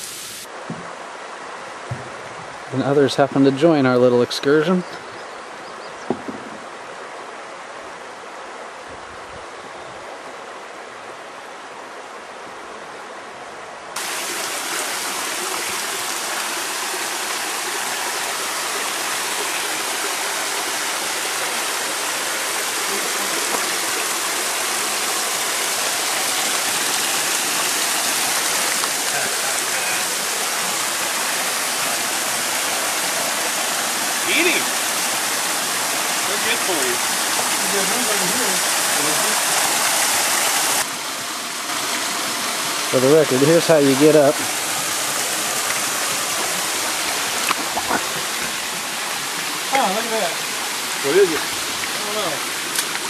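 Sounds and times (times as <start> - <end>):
waterfall splashing onto rock: 6.1 - 6.7, 14.0 - 40.9, 41.7 - 53.0.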